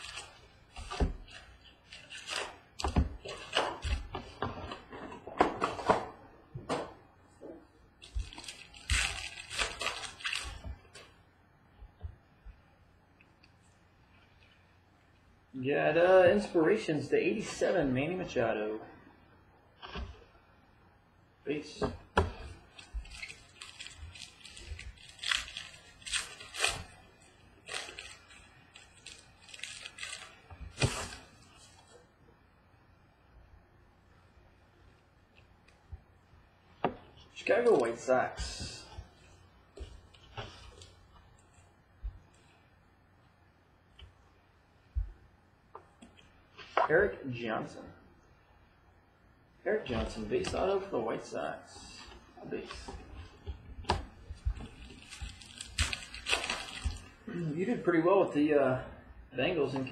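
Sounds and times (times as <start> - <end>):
foil wrappers crinkling and tearing: 0.0 - 2.6, 8.0 - 11.1, 22.7 - 32.0, 54.3 - 57.2.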